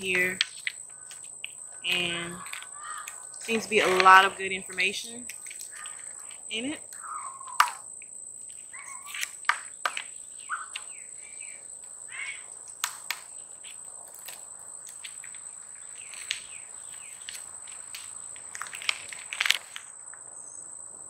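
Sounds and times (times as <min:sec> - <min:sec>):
paper pages turning over plastic: 0:00.0 - 0:06.4, 0:08.5 - 0:10.9, 0:12.6 - 0:19.9
birds chirping: 0:00.0 - 0:19.0
high-pitched insect drone: 0:00.0 - 0:21.0.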